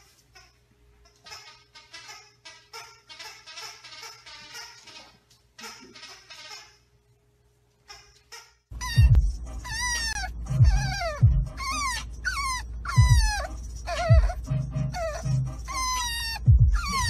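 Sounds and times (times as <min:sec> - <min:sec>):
puppy whining: 0:08.7 - 0:17.0
low thumps: 0:08.9 - 0:09.5, 0:10.3 - 0:11.6, 0:16.4 - 0:17.0.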